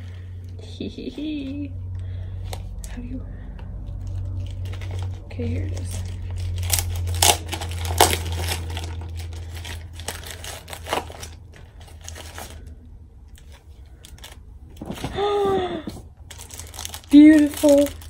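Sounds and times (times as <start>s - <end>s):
packaging crinkling and rustling: 3.9s - 18.0s.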